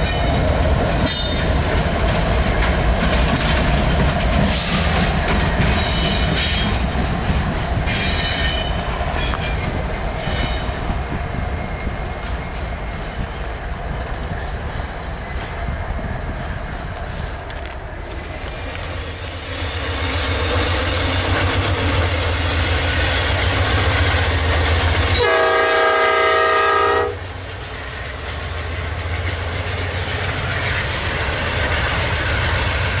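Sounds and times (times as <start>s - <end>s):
diesel locomotives rumbling: 0.0s - 33.0s
locomotive horn chord: 25.2s - 27.2s.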